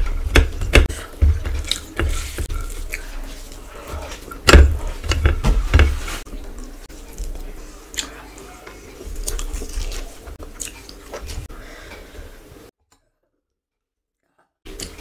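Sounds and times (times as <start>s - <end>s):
wet chewing with lip smacks: 9.2s - 11.4s.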